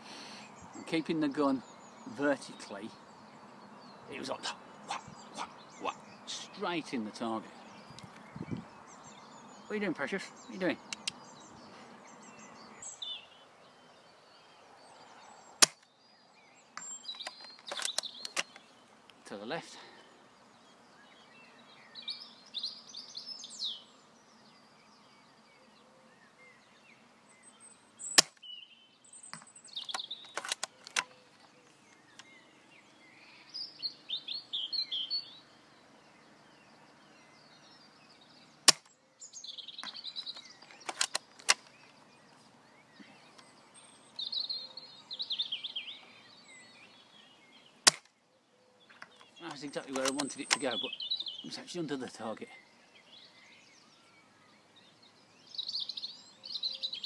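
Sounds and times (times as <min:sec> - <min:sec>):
songbirds singing: 0:00.0 - 0:57.0
airsoft rifle shots: 0:15.6 - 0:15.8, 0:28.2 - 0:28.4, 0:38.7 - 0:38.9, 0:47.9 - 0:48.1
rifle bolt clicks: 0:15.6 - 0:15.9, 0:17.2 - 0:18.6, 0:29.8 - 0:31.2, 0:38.7 - 0:38.9, 0:40.2 - 0:41.7, 0:47.9 - 0:48.1, 0:49.9 - 0:50.7.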